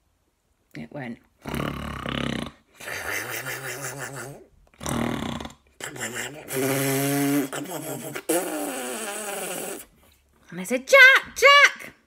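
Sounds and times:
woman imitating snoring: 0:01.4 - 0:09.9.

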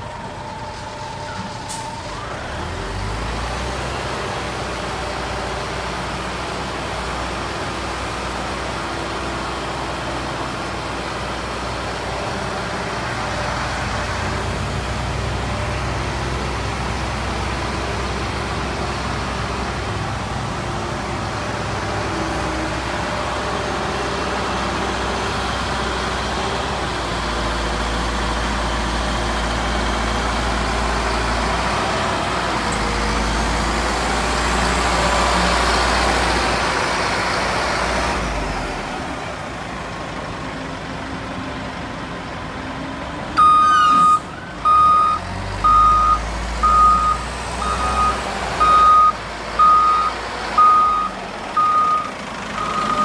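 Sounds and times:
wheel loader diesel engine: 0:00.0 - 0:53.0
reversing alarm beeps: 0:43.4 - 0:53.0.

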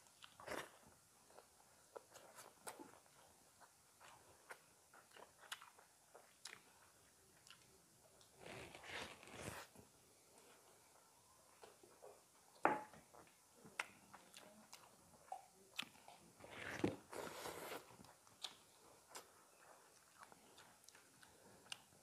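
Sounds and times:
chewing and lip smacks: 0:00.1 - 0:06.8, 0:17.8 - 0:22.0
breathy hiss: 0:17.1 - 0:17.9.

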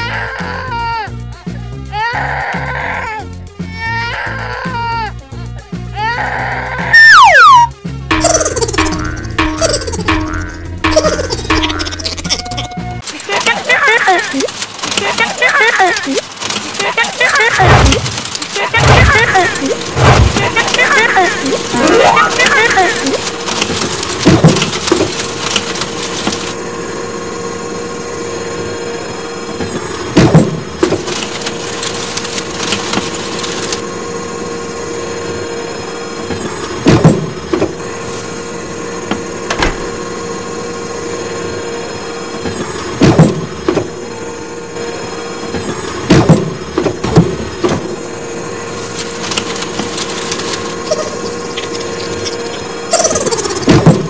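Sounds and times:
mechanical whir: 0:06.8 - 0:54.0.

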